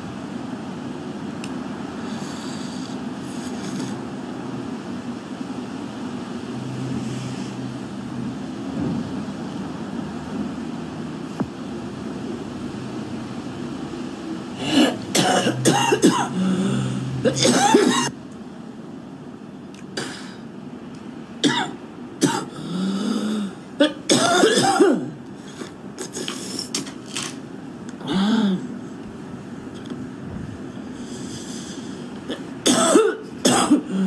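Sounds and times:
woman coughing: 0:14.6 - 0:18.2, 0:21.4 - 0:22.5, 0:23.8 - 0:25.2, 0:32.3 - 0:34.0.

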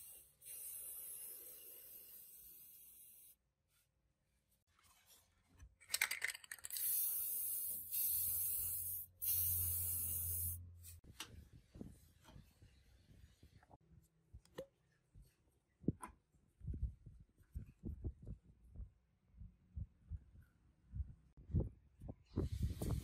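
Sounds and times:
spray can hissing: 0:06.7 - 0:10.6.

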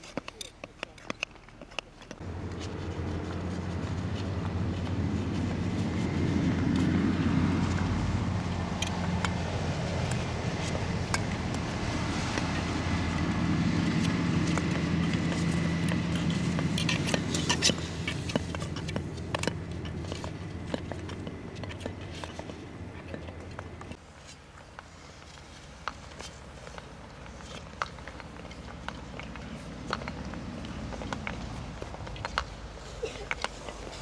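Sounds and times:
skate blades scraping on ice: 0:00.0 - 0:34.0
steady low hum: 0:02.2 - 0:33.2.

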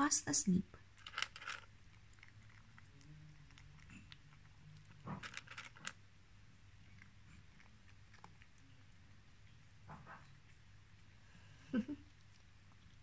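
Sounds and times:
cat crunching dry kibble: 0:00.8 - 0:06.0, 0:06.7 - 0:09.8.

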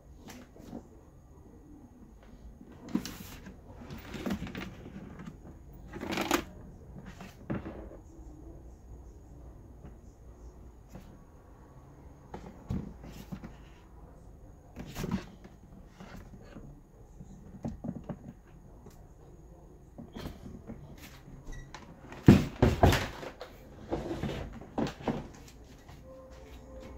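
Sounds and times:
plastic box knocks and clatters: 0:22.2 - 0:25.3.

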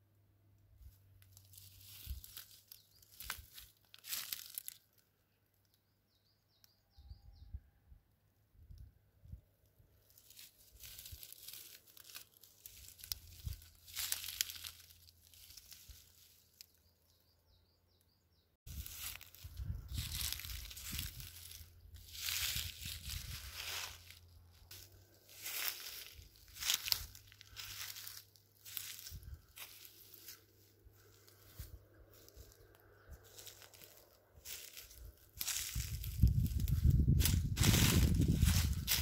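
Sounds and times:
footsteps through dry grass and leaves: 0:00.8 - 0:05.1, 0:10.0 - 0:16.9, 0:18.7 - 0:39.0.

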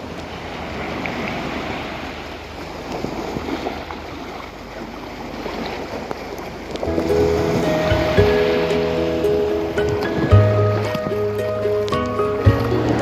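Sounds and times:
faint water splashes: 0:00.0 - 0:13.0
sea waves washing on shore: 0:00.0 - 0:13.0.

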